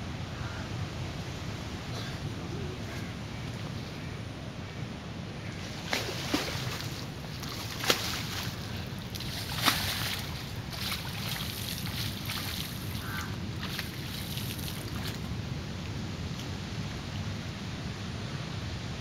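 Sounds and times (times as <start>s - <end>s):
water splashing: 5.8s - 15.3s.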